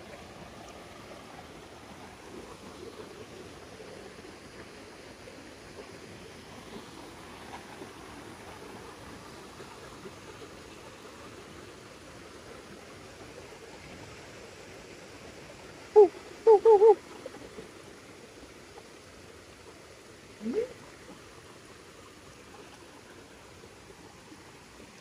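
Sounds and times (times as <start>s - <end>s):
running water: 0.0s - 25.0s
frog calling: 16.0s - 17.0s.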